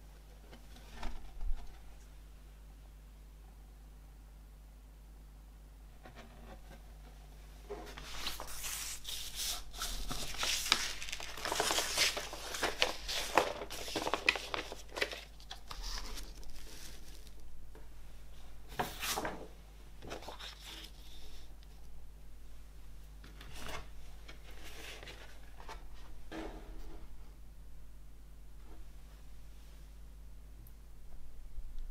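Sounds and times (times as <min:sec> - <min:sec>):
paper and cardboard rustling: 0:07.7 - 0:17.4, 0:20.0 - 0:21.4, 0:23.4 - 0:26.1.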